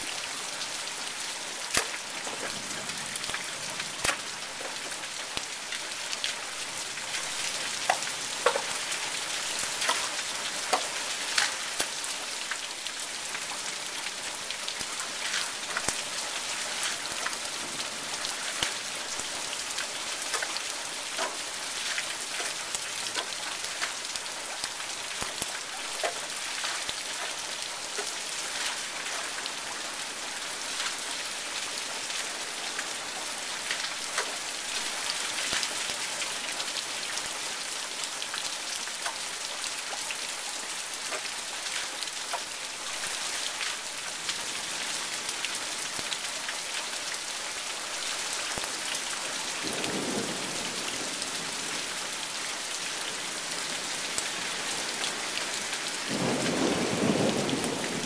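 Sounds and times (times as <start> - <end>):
steady rain hiss: 0.0 - 58.0
sharp raindrop hits: 1.7 - 3.4.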